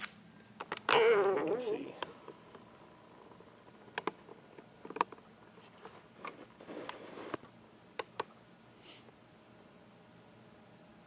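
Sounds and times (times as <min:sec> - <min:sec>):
soft rustling: 0:05.4 - 0:07.5.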